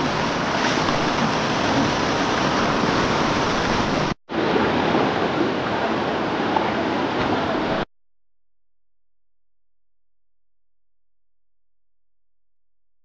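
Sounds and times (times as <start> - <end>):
flowing river water: 0.0 - 7.9.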